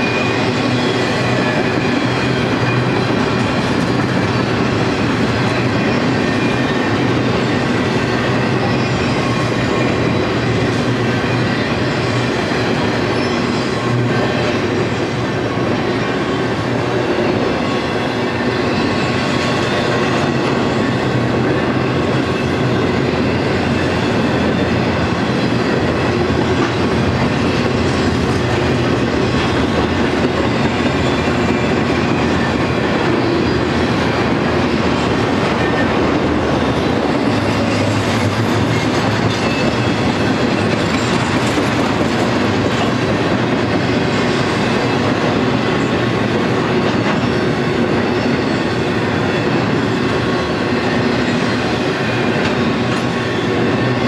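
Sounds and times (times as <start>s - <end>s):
freight train rolling past: 0.0s - 54.0s
steel wheels on rails: 0.0s - 54.0s.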